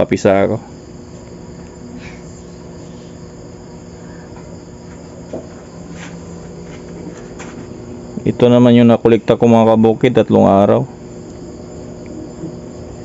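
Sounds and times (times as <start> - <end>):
crickets chirring: 0.0 - 13.0
low steady hum: 0.0 - 13.0.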